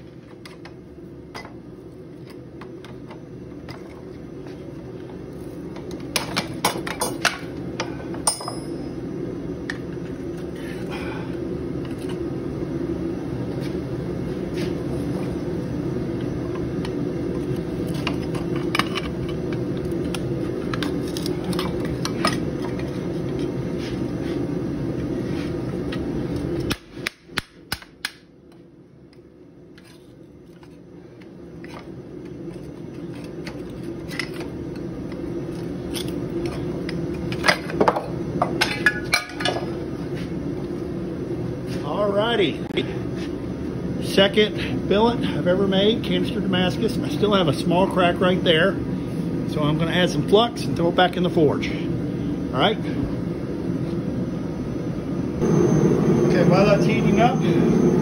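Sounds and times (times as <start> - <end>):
low rushing noise: 55.4 - 58.0.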